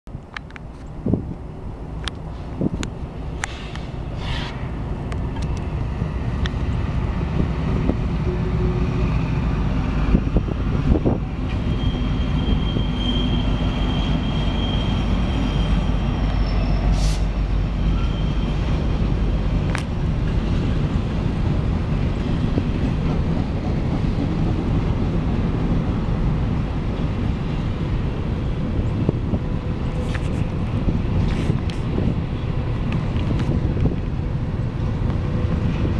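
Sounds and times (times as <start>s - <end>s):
freight train rumbling and clattering: 0.1s - 35.9s
high wheel squeal: 11.4s - 18.8s.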